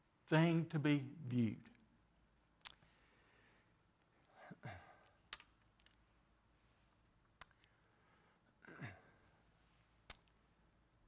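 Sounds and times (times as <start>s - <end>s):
man sighing: 4.4s - 5.2s.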